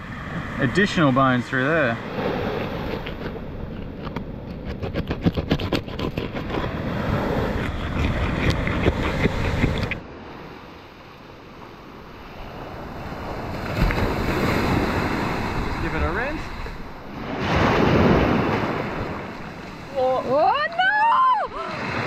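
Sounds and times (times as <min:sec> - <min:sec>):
wind: 0:00.0 - 0:22.0
surf: 0:06.3 - 0:22.0.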